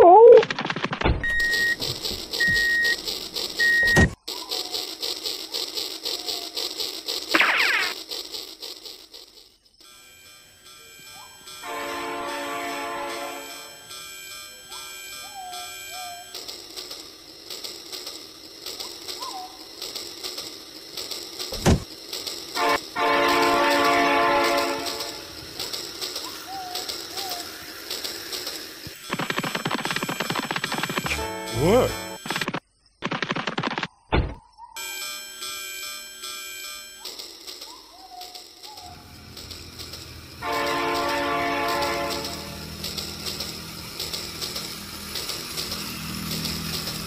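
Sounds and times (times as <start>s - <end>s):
short high electronic beeps: 1.2s - 4.2s, 29.0s - 32.5s
toy train running on track: 1.3s - 32.4s, 34.8s - 47.0s
sharp thump: 21.6s - 21.8s.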